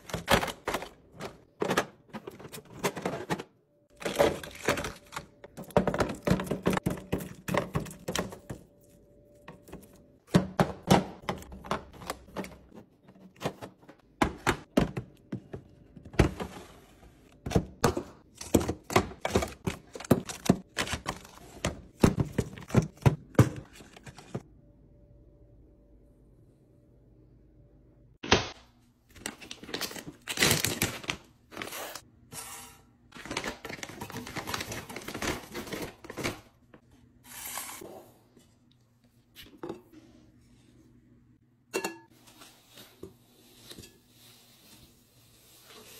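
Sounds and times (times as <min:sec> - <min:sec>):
plastic containers clicking and knocking: 0:00.0 - 0:08.6, 0:13.3 - 0:16.4, 0:17.4 - 0:24.4.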